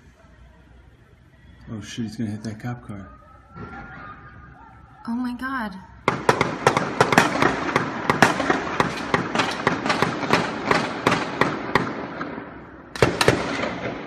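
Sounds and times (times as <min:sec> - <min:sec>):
rapid gunfire: 0:06.0 - 0:12.4, 0:13.0 - 0:14.0.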